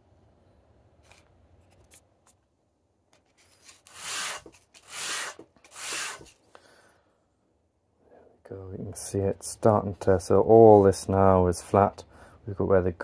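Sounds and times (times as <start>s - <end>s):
wood scraping on sandpaper: 3.3s - 6.4s.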